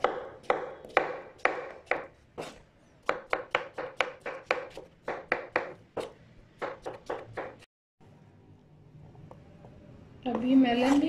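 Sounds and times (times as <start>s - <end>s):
knife chopping on wooden board: 0.0s - 7.6s.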